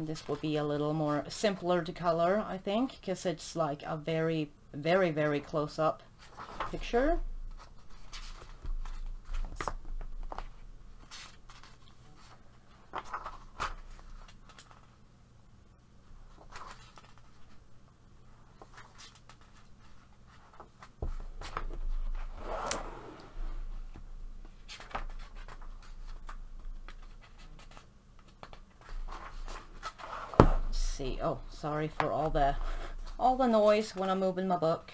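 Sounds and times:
paper pages rustling: 0:07.5 - 0:15.0, 0:16.3 - 0:17.6, 0:18.5 - 0:22.8, 0:24.4 - 0:30.5
page turning swish: 0:22.2 - 0:23.4.

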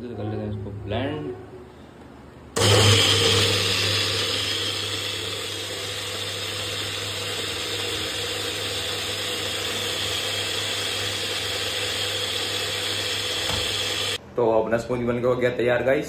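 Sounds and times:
blender motor whirring: 0:02.6 - 0:14.2.

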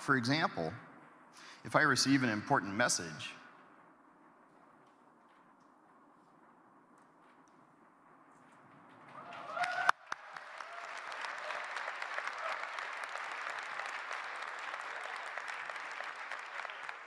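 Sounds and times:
audience applauding: 0:08.9 - 0:17.0.

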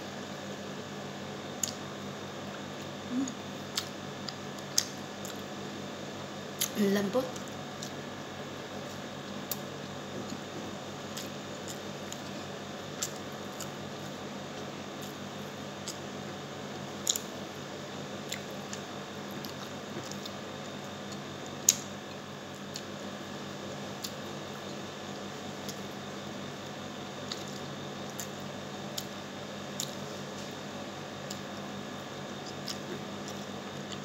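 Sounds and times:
low room hum: 0:00.0 - 0:34.0
chewing smacks: 0:32.4 - 0:34.0.

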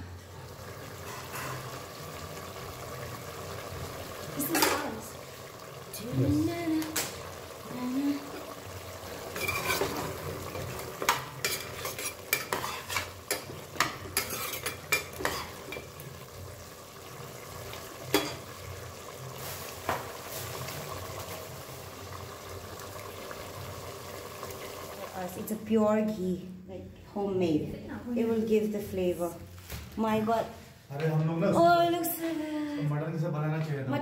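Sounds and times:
food sizzling in pan: 0:00.0 - 0:26.4
metal spoon scraping in pot: 0:01.0 - 0:01.7, 0:09.3 - 0:15.9.

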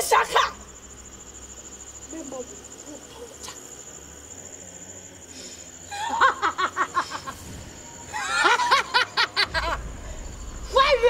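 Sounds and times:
high insect trill: 0:00.0 - 0:11.0
woman laughing: 0:05.9 - 0:07.4, 0:08.1 - 0:09.8.

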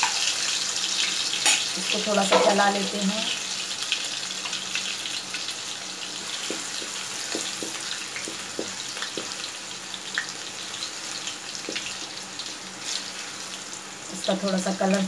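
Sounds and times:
garlic sizzling in hot oil: 0:00.0 - 0:15.0
wooden spoon knocking on pan: 0:02.3 - 0:02.6, 0:06.4 - 0:09.4, 0:11.6 - 0:11.9.

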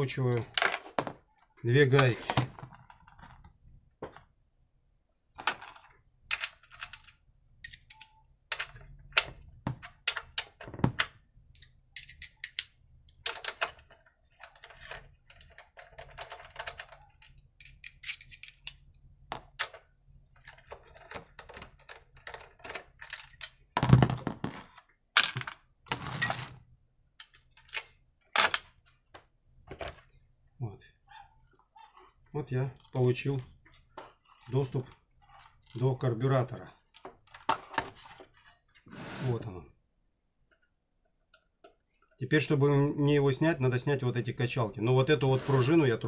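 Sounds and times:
metal tools clinking: 0:07.6 - 0:08.2, 0:16.6 - 0:18.9, 0:26.2 - 0:26.6
metal scrape: 0:38.0 - 0:39.5, 0:45.2 - 0:45.9.

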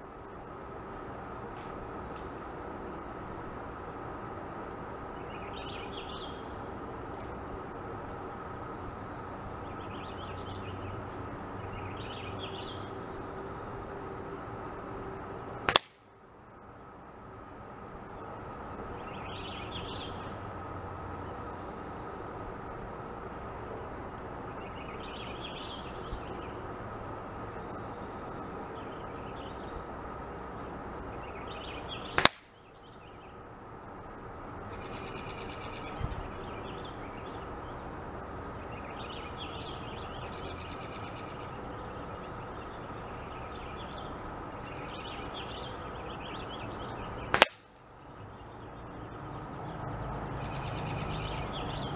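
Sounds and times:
small birds chirping: 0:05.1 - 0:14.2, 0:17.2 - 0:20.4, 0:23.6 - 0:51.9
air rifle shot: 0:15.7 - 0:16.0, 0:32.2 - 0:32.5, 0:47.3 - 0:47.7.

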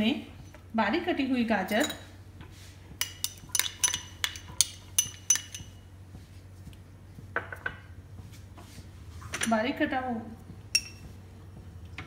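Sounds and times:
spoon clinking glass bowl: 0:03.0 - 0:05.8, 0:10.8 - 0:11.0.

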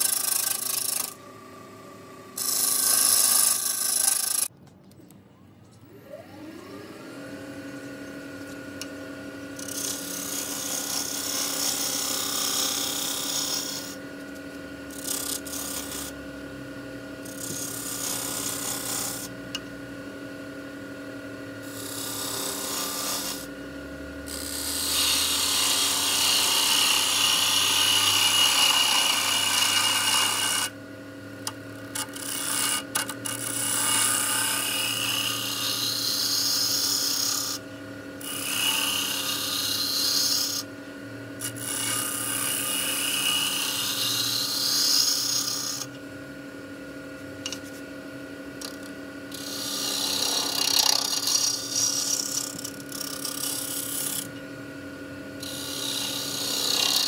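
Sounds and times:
wood lathe running: 0:00.0 - 0:04.5, 0:06.4 - 0:14.3, 0:14.9 - 0:19.9, 0:21.6 - 0:30.8, 0:31.4 - 0:46.0, 0:48.6 - 0:54.4, 0:55.4 - 0:57.0
turning tool scraping wood: 0:02.4 - 0:04.5, 0:17.3 - 0:19.4, 0:24.3 - 0:30.7, 0:31.9 - 0:37.6, 0:41.4 - 0:45.8, 0:48.6 - 0:54.3, 0:55.4 - 0:57.0.

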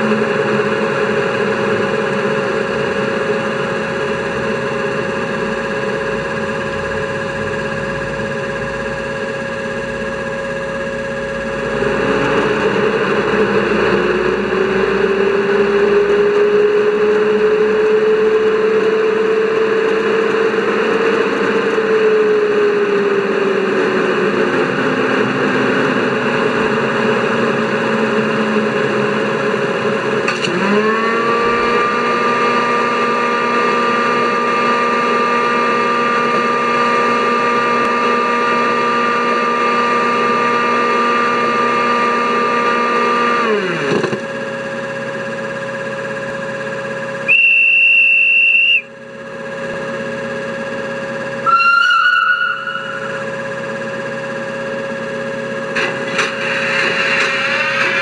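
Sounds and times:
rushing fan noise with hum: 0:00.0 - 0:58.0.

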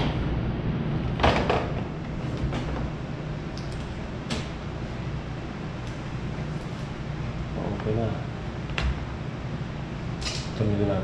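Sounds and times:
steady low hum: 0:00.0 - 0:11.0
washing machine knocks: 0:01.2 - 0:02.9.

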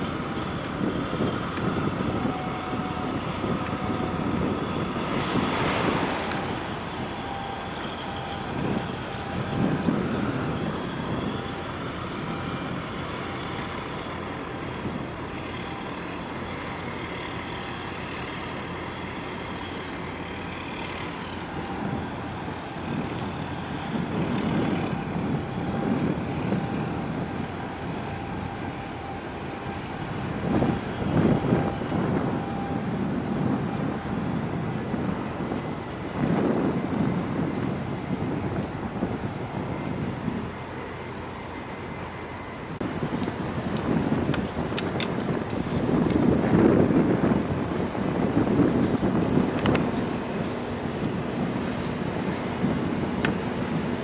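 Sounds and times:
faint steady tones: 0:00.0 - 0:36.0
distant engines and traffic: 0:00.0 - 0:54.0.

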